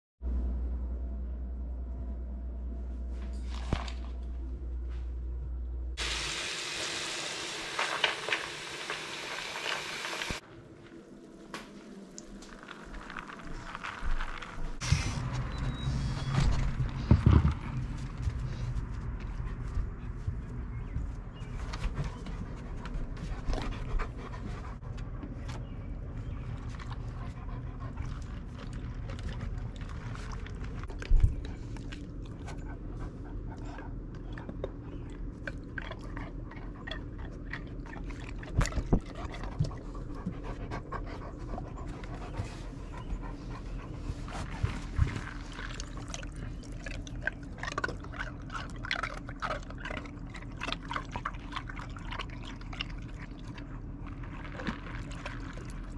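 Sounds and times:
dog panting: 21.4 - 25.5, 26.2 - 29.6, 31.3 - 34.7, 35.8 - 45.6
dog crunching ice cubes: 45.3 - 55.9.

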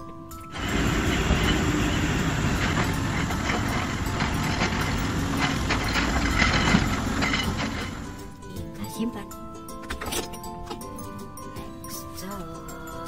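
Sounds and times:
dump truck engine running: 0.0 - 8.7
knocks and clatter: 0.5 - 8.4.

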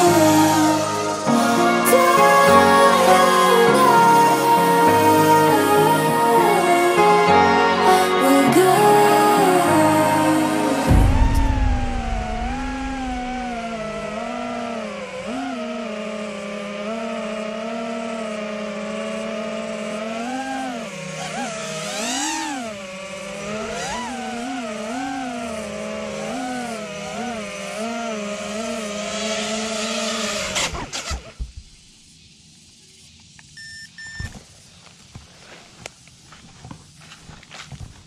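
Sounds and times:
quadcopter motors whining: 0.0 - 35.2
short beep: 33.6 - 34.3.

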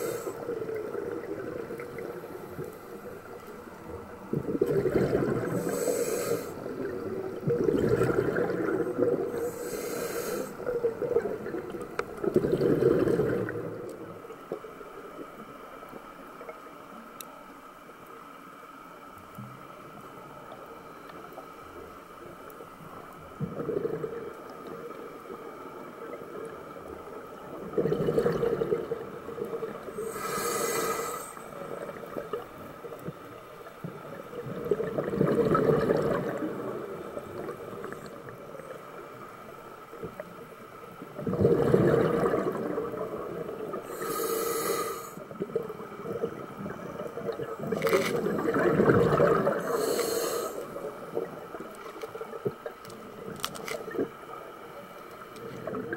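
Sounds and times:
hissing regulator inhalations: 0.0 - 0.6, 5.4 - 6.9, 9.3 - 10.7, 29.9 - 31.6, 43.8 - 45.3, 49.6 - 50.8
bubbling exhalations underwater: 4.0 - 5.8, 6.6 - 9.5, 10.6 - 13.9, 23.4 - 24.8, 27.5 - 30.2, 34.3 - 38.4, 41.1 - 44.0, 45.4 - 50.0.

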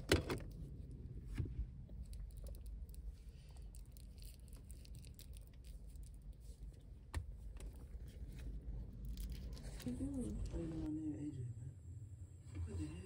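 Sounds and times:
low steady rumble: 0.0 - 13.0
handling clicks and crinkles: 1.9 - 10.5.

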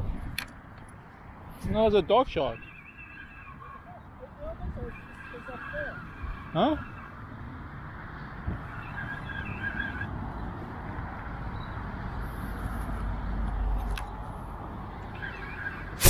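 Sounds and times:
highway traffic noise: 0.0 - 16.0.

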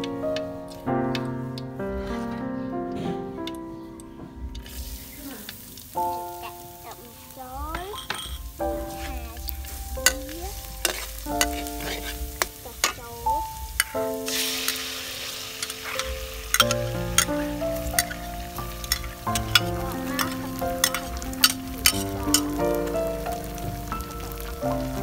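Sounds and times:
garlic frying in oil: 4.6 - 25.0
sauce sizzling in hot wok: 4.6 - 25.0
metal spatula scraping a wok: 8.0 - 13.0, 13.7 - 22.6.

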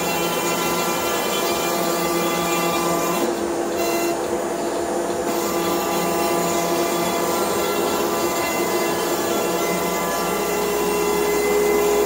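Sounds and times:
router spindle whine: 5.3 - 12.0.

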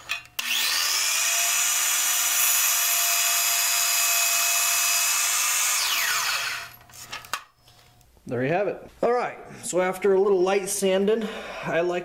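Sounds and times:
miter saw whining: 0.4 - 6.8
saw blade cutting wood: 0.4 - 6.8.

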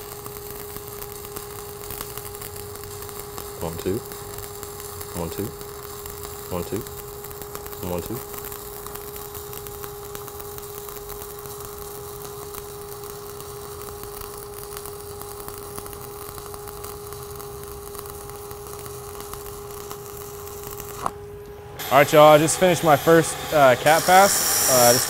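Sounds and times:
steady electrical hum: 0.0 - 25.0
welding arc crackling: 0.0 - 25.0.

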